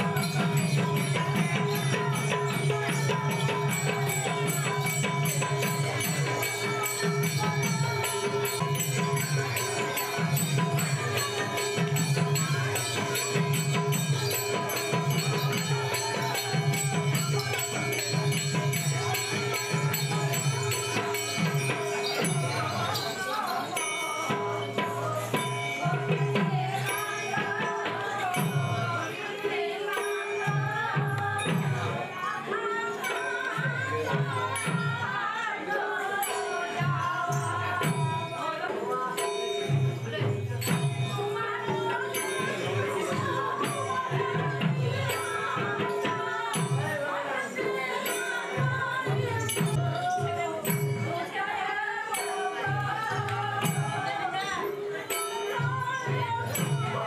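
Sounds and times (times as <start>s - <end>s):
drum beating steady rhythm: 0.0s - 57.0s
jingling hand cymbals: 0.0s - 57.0s.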